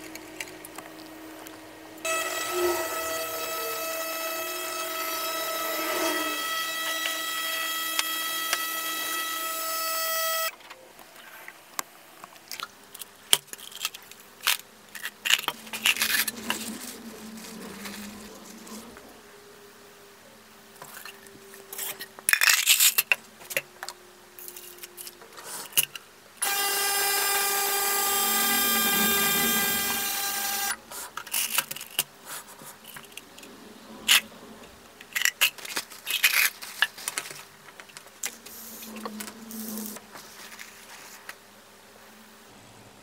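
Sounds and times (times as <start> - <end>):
ultrasonic cleaner buzzing: 0.0 - 10.6, 26.4 - 30.9.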